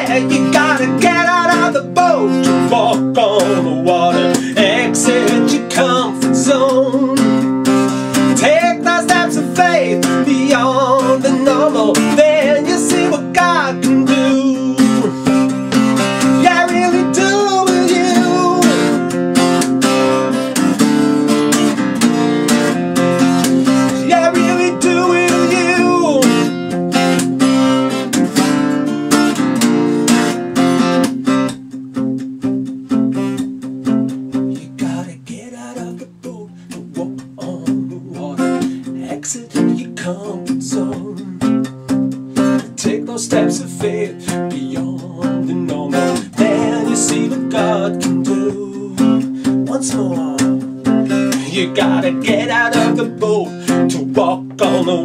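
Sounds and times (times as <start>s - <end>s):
person singing: 0.0s - 19.2s, 23.6s - 26.6s, 34.5s - 41.6s, 42.6s - 55.0s
acoustic guitar strummed: 0.0s - 55.0s.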